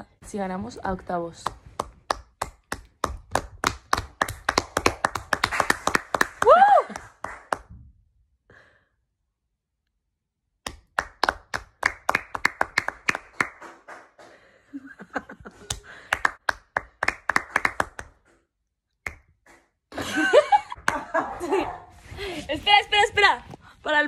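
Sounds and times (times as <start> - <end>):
hand claps and taps: 1.4 - 7.8, 10.6 - 14.5, 15.6 - 19.8.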